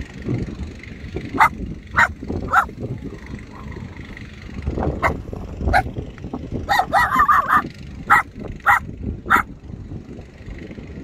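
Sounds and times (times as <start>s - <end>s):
dog barking: 1.3s - 2.7s, 5.0s - 5.9s, 6.7s - 9.5s.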